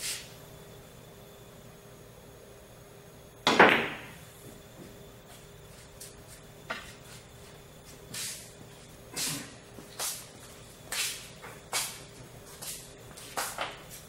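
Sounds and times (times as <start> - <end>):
billiard balls clicking: 3.5 - 4.2
cue striking cue ball: 3.5 - 4.2.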